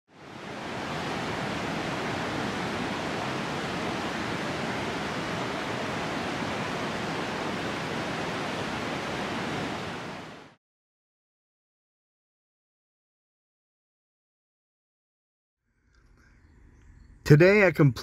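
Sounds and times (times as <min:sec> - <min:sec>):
steady rushing noise: 0:00.2 - 0:10.6.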